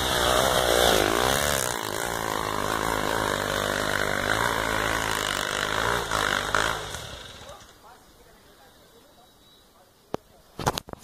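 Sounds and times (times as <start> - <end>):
motorcycle engine revving: 0.0 - 7.7.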